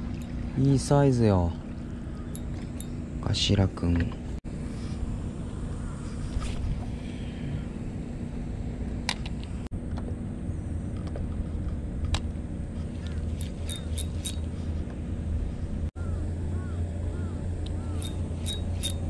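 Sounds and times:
outboard motor idling: 0.0 - 9.7, 12.6 - 19.0
fishing reel clicking: 13.0 - 14.5, 17.7 - 19.0.

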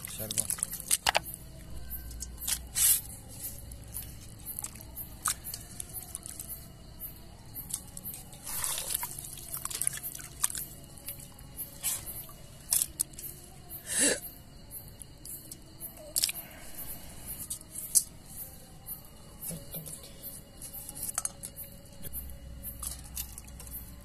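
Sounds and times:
squelching and splashing water: 0.0 - 1.4, 2.0 - 6.8, 7.6 - 13.4, 22.3 - 24.0.

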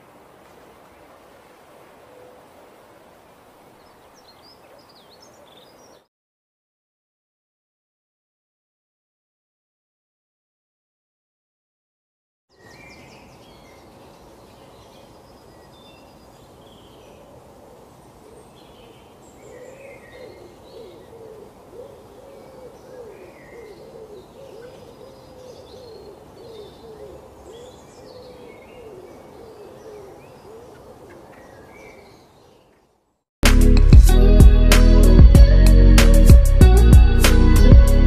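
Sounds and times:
low cooing call: 1.8 - 3.0, 16.9 - 32.4
small birds chirping: 3.7 - 6.1, 12.5 - 33.0.

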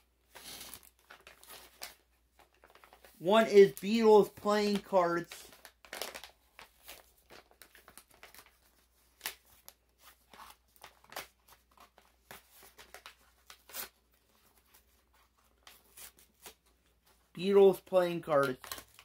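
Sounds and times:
packaging crinkling: 0.4 - 4.0, 4.7 - 14.0.

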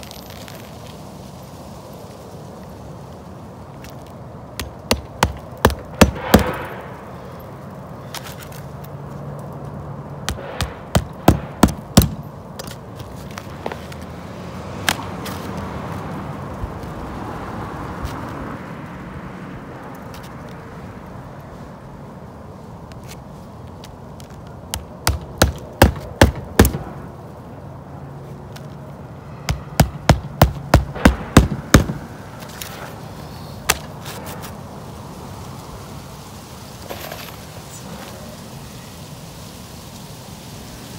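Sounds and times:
hammer striking roofing nails: 4.6 - 6.7, 10.3 - 12.2, 24.7 - 26.9, 29.5 - 32.1.

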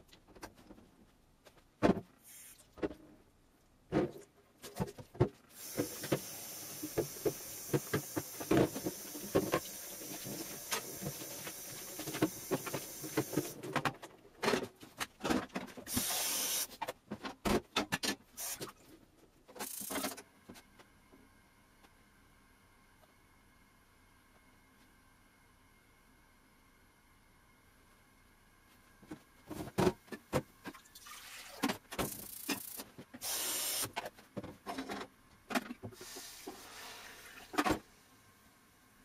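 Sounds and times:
short bursts of hissing: 2.2 - 2.6, 5.6 - 9.3, 15.9 - 16.8, 18.4 - 18.6, 32.1 - 33.9.

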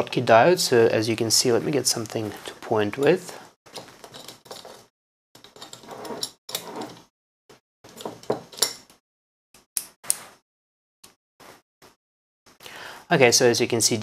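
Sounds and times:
small objects rustling and knocking: 3.7 - 4.9.

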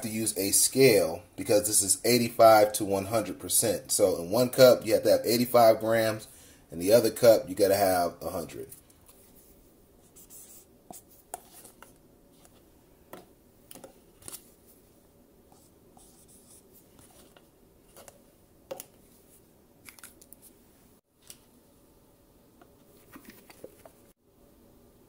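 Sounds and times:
marker writing on plastic: 10.0 - 12.5, 15.5 - 17.3
plastic cups clicking and crinkling: 22.6 - 24.1.

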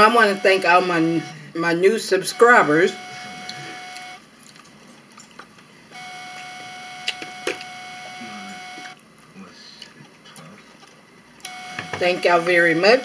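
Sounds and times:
electronic beep tone: 0.0 - 1.4, 2.3 - 4.2, 6.0 - 9.0, 11.5 - 13.0.

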